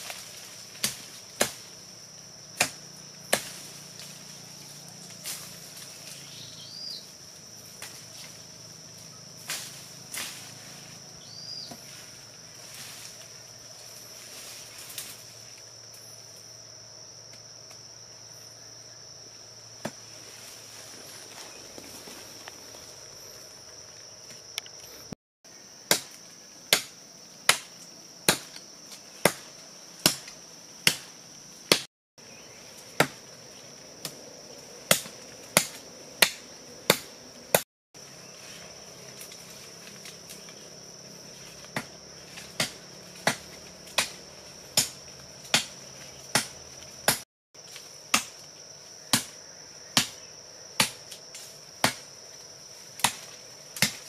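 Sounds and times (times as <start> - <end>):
insects droning: 0.0 - 54.0
wood being chopped: 0.8 - 1.7, 2.6 - 3.7, 25.9 - 28.6, 29.2 - 31.1, 31.7 - 31.9, 33.0 - 33.2, 34.9 - 37.6, 41.6 - 47.2, 48.1 - 48.4, 49.1 - 49.4, 50.0 - 51.2, 51.8 - 52.1, 53.0 - 54.0.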